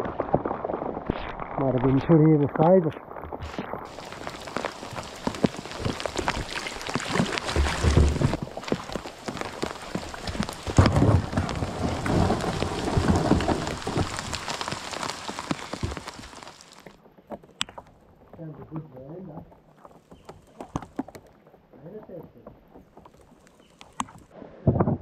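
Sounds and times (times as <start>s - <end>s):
low rumbles: 0.0s - 16.8s
heavy rain on water: 3.9s - 17.0s.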